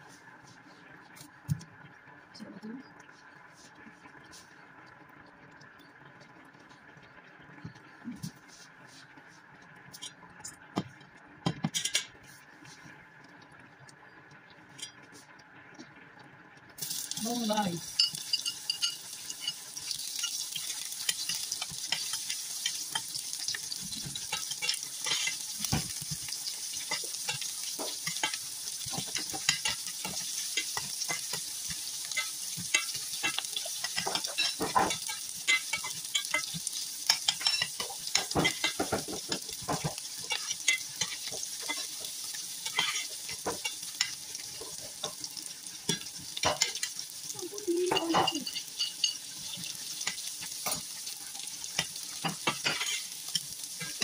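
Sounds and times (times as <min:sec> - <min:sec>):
onions sizzling in oil: 0:16.7 - 0:54.0
spatula scraping pan: 0:18.0 - 0:47.1, 0:47.9 - 0:54.0.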